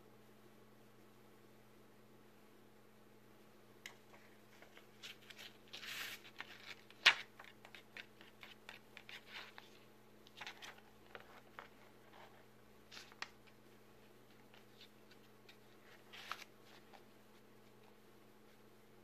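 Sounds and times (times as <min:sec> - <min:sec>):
paper rustling and crinkling: 0:04.1 - 0:17.9.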